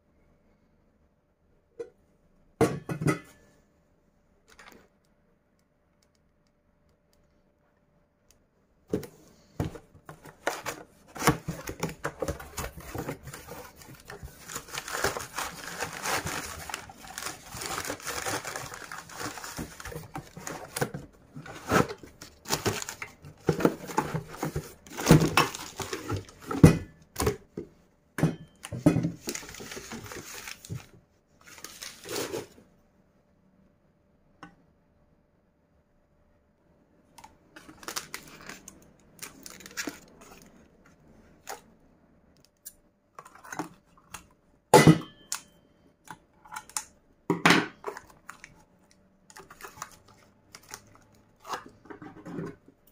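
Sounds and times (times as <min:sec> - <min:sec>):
plastic and cardboard rustling: 0:08.9 - 0:27.7, 0:28.5 - 0:32.7, 0:37.5 - 0:41.7, 0:47.8 - 0:52.9.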